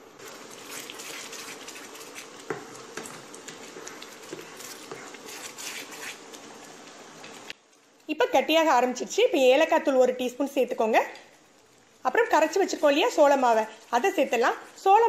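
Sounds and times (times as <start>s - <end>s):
thick mixture squelching and bubbling: 0.0s - 8.1s
spatula scraping a pan: 0.2s - 6.2s.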